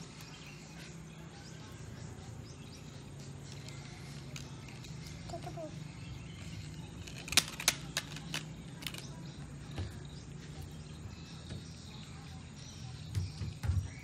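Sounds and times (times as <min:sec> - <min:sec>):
sharp plastic clicks: 0:07.0 - 0:09.2.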